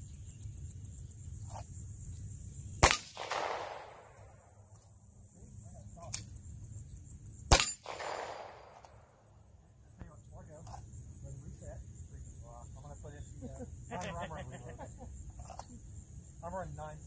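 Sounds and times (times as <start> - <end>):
pistol shots with echo: 2.8 - 4.4, 7.5 - 9.1.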